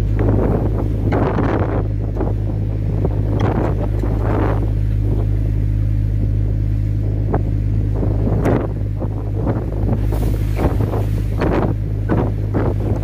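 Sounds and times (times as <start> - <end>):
boat engine humming: 0.0 - 13.0
rush of wind: 0.0 - 13.0
wave wash: 0.0 - 13.0.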